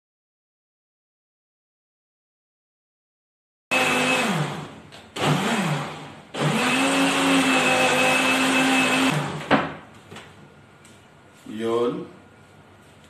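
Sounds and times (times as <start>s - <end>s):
blender motor running: 3.7s - 9.4s.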